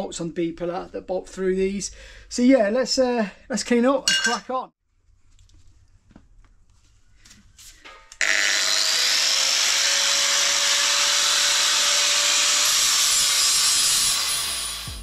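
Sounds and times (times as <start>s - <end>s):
angle grinder whining: 8.2s - 15.0s.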